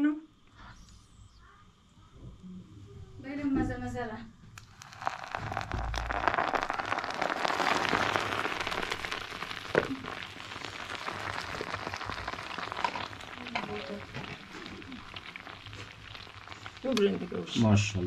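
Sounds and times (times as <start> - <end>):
hot oil sizzling and crackling: 4.5 - 18.0.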